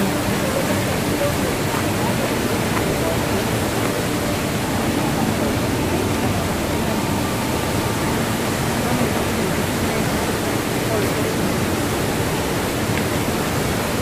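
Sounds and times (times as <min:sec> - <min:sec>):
waterfall rushing into pool: 0:00.0 - 0:14.0.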